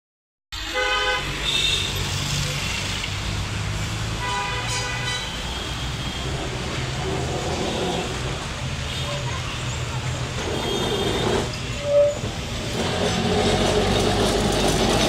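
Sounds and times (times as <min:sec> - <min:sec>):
vehicle horns honking: 0:00.6 - 0:02.0, 0:04.2 - 0:09.4
steady low traffic hum: 0:01.2 - 0:15.0.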